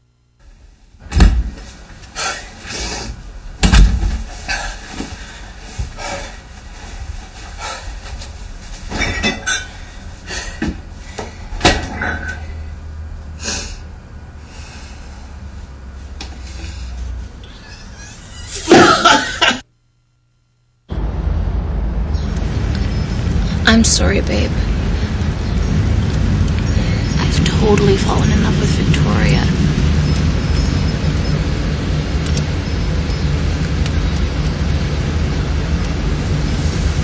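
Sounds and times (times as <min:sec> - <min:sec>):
low steady rumble: 0:20.0 - 0:37.0.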